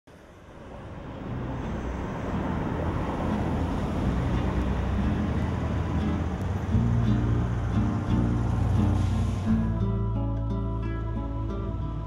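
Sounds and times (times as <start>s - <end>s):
city traffic rumbling hum: 0.1s - 12.0s
low held music notes: 1.0s - 12.0s.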